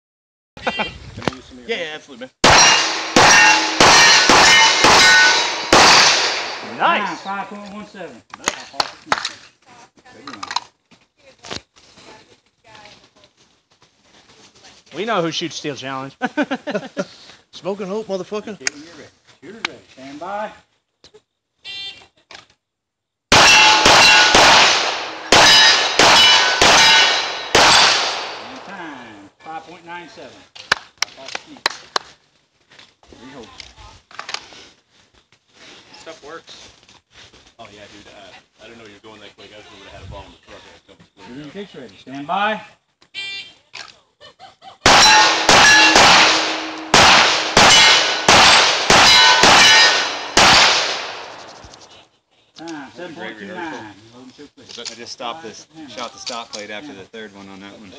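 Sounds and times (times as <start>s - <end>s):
steel plate clanging: 2.4s - 6.7s, 23.3s - 27.9s, 44.9s - 50.4s
pistol shots: 2.4s - 7.0s, 23.3s - 28.7s, 44.9s - 51.7s
gunshots: 2.4s - 7.3s, 23.3s - 28.7s, 44.8s - 51.7s.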